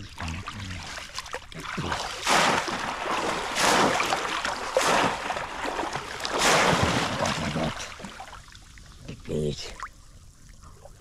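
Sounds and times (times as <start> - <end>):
heavy splashes in water: 0.0 - 8.4
water sloshing: 0.0 - 11.0.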